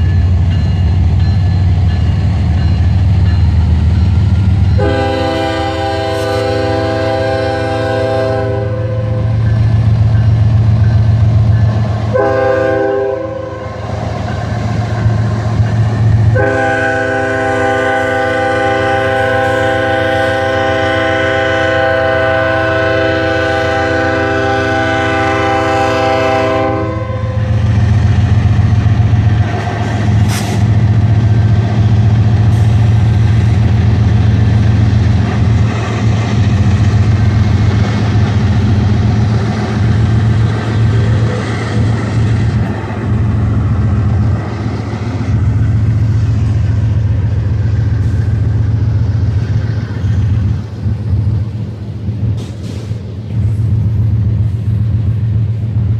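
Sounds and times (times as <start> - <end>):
train rumbling through crossing: 0.0 - 55.9
locomotive air horn blasts: 4.8 - 9.4, 12.1 - 13.8, 16.3 - 27.5.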